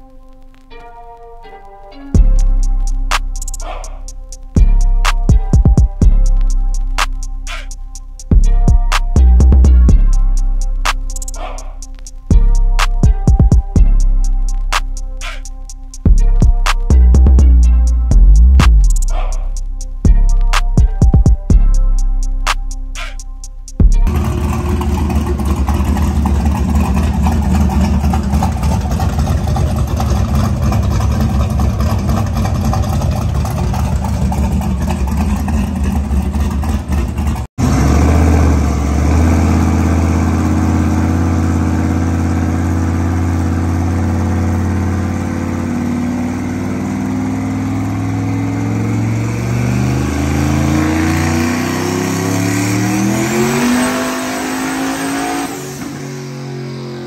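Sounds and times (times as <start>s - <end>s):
high rising whine: 2.1s - 57.0s
truck engine revving under load: 24.0s - 57.0s.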